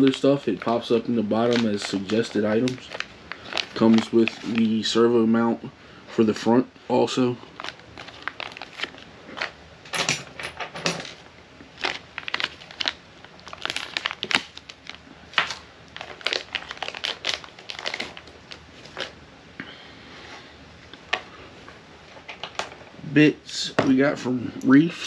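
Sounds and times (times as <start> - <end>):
plastic packaging crinkling: 0.0 - 5.2, 7.0 - 9.6, 11.0 - 19.2, 22.1 - 22.8.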